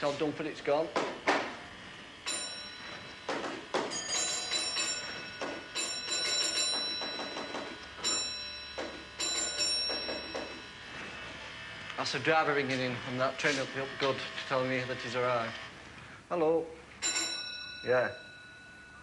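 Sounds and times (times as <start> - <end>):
telephone bell ringing: 2.2 - 11.0, 17.0 - 19.0.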